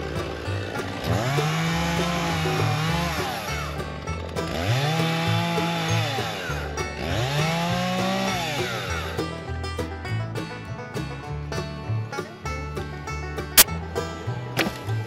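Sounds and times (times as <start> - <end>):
chainsaw cutting wood: 0.0 - 8.9
banjo music: 0.0 - 15.0.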